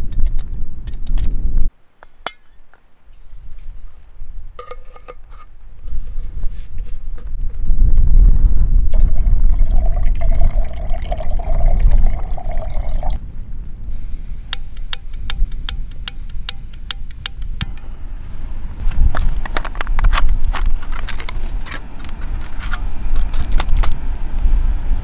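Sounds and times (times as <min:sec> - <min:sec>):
wind rumble on microphone: 0:00.0 - 0:01.7, 0:05.7 - 0:25.0
water pouring into pot: 0:09.1 - 0:13.2
sharp clicks: 0:14.5 - 0:18.0.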